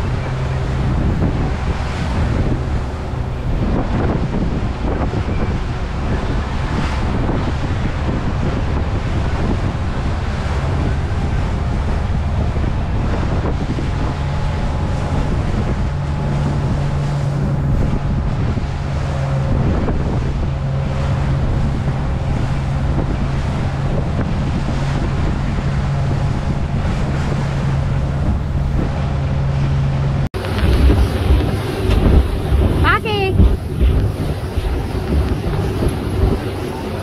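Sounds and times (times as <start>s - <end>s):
boat engine running: 0.0s - 37.0s
water rushing past hull: 0.0s - 37.0s
wind buffeting microphone: 0.0s - 37.0s.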